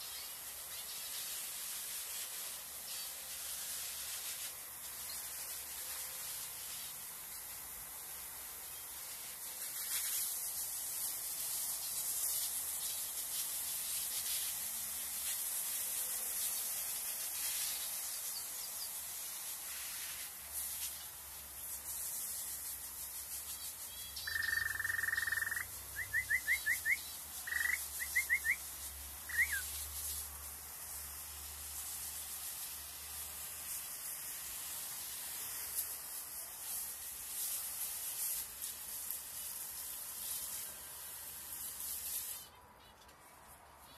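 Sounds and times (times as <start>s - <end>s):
cage bird chirping: 23.6s - 28.7s, 29.3s - 29.7s.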